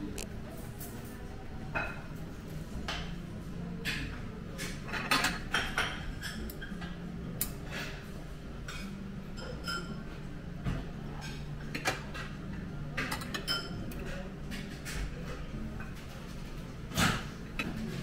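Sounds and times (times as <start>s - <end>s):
metal tongs clinking on plates: 3.8s - 8.0s, 8.7s - 10.1s, 13.0s - 15.1s.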